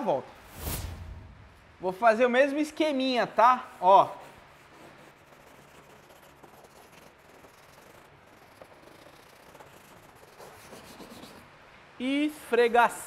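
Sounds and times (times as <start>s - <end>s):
brush scrubbing plastic trim: 4.3s - 11.5s.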